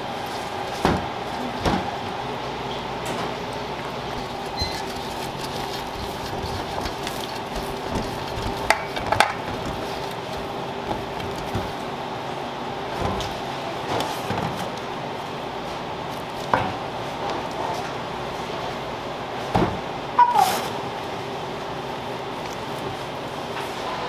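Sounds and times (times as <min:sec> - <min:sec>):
steady background hum: 0:00.0 - 0:24.0
spatula scraping batter in bowl: 0:04.2 - 0:11.8.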